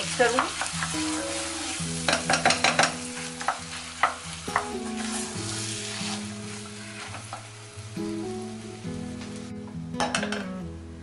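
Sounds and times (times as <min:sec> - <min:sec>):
butter and oil sizzling: 0:00.0 - 0:10.6
knocks on a pot: 0:10.0 - 0:10.5.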